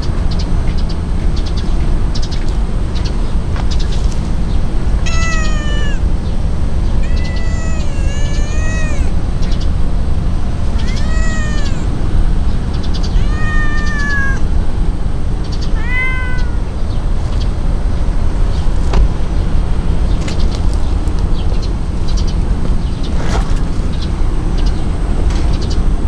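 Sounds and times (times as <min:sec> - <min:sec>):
steady low rumble: 0:00.0 - 0:26.0
cat meowing: 0:05.0 - 0:06.2, 0:06.9 - 0:09.2, 0:10.7 - 0:12.0, 0:13.0 - 0:14.5, 0:15.7 - 0:16.8.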